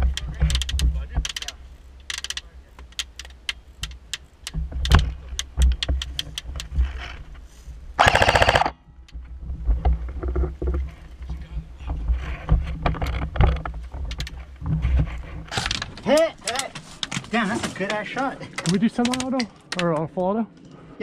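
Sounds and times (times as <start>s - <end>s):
airsoft gun full-auto burst: 8.0s - 8.7s
airsoft gun single shots: 8.0s - 8.7s.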